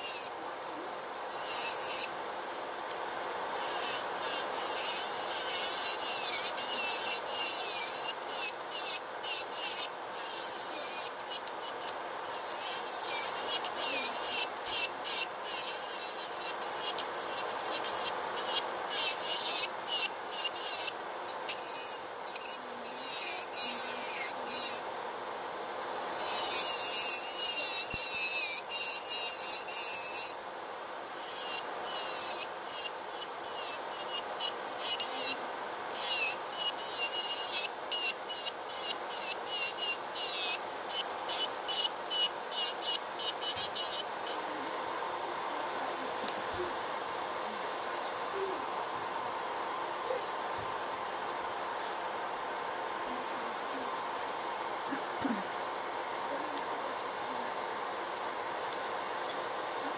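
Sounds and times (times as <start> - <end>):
nail drill grinding: 3.6 - 24.8, 26.2 - 30.4.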